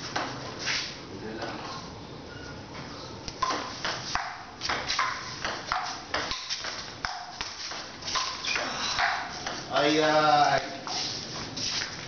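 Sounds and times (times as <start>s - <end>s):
ball bouncing on table: 3.4s - 9.7s
ping-pong ball hitting paddles: 3.4s - 10.0s.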